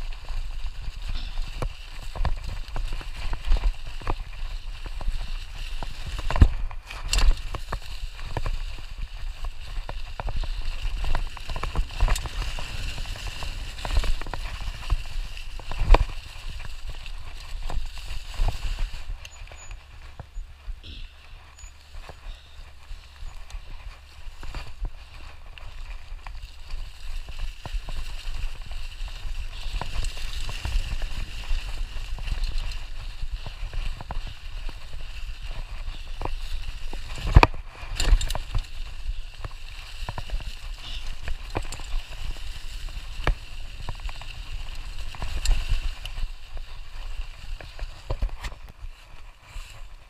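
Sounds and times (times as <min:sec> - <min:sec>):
bike knocks and rattles: 0:00.0 - 0:49.2
bike tyres crackling through leaves: 0:00.0 - 0:50.0.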